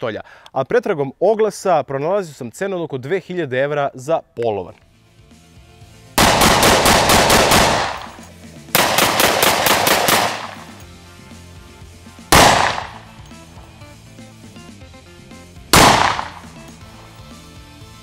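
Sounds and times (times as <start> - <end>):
quiet background music: 0.7 - 18.0
pistol shots: 6.2 - 10.8, 12.3 - 13.2, 15.7 - 16.6.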